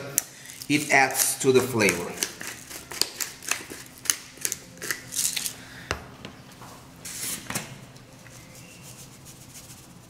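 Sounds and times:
pepper mill grinding: 0.5 - 5.6.

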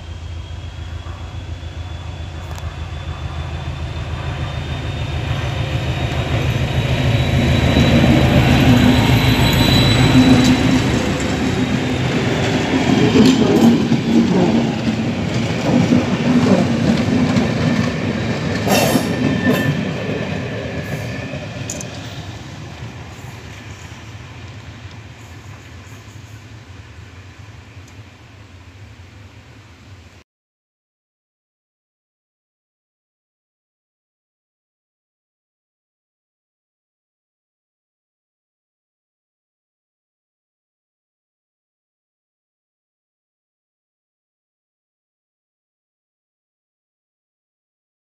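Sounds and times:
thin high whine: 0.0 - 12.6
locomotive rumble passing: 0.0 - 30.0.

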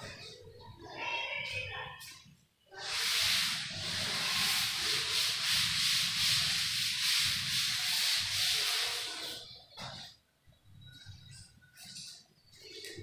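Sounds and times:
duster rubbing chalkboard: 2.8 - 10.0.

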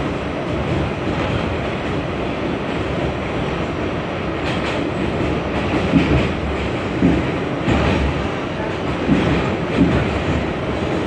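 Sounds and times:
passing subway train: 0.0 - 11.0
subway car rumble: 0.0 - 11.0
wheels clacking over rail joints: 4.4 - 11.0.

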